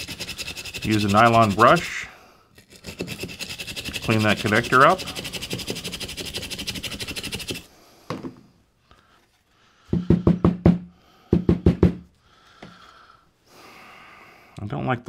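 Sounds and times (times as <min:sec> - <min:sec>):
brush scrubbing a connector: 0:00.0 - 0:07.7.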